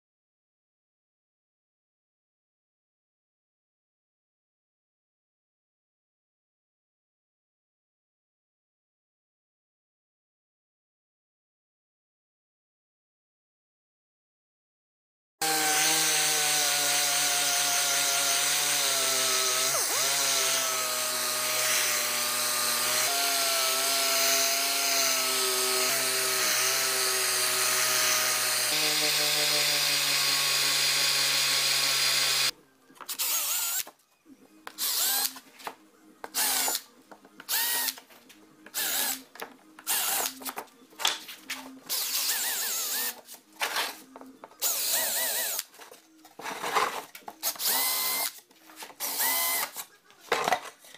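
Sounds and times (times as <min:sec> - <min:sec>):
orbital sander on plywood: 0:15.4 - 0:32.5
cordless drill whirring: 0:24.6 - 0:32.5, 0:34.8 - 0:35.4, 0:37.5 - 0:38.0, 0:41.9 - 0:43.1, 0:44.6 - 0:45.7, 0:47.4 - 0:48.4, 0:49.0 - 0:49.8.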